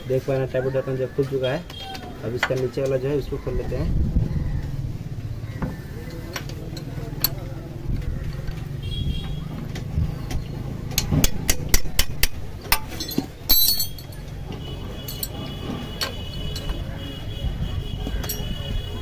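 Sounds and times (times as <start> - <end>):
metal spanner clinking and scraping: 10.9 - 16.9, 18.1 - 18.6.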